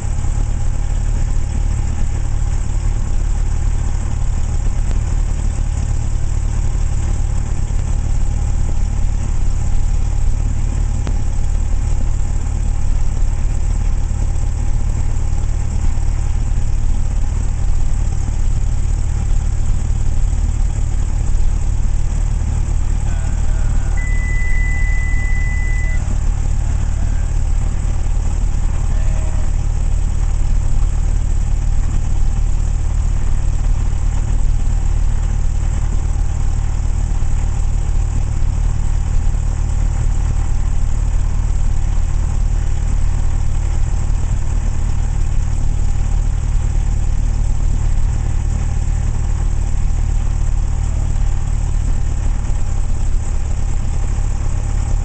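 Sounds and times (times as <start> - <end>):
aircraft engine idling: 0.0 - 55.0
high beep: 23.1 - 26.1.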